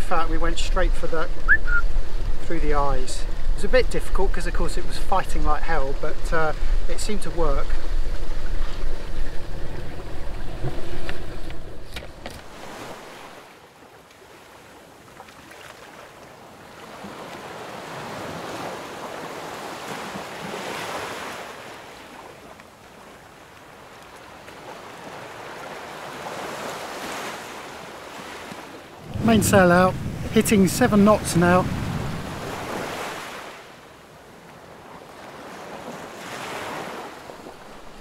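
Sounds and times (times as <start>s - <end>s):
water rushing past a hull: 0.0s - 38.0s
wind rumble on microphone: 0.2s - 13.1s, 29.0s - 33.1s.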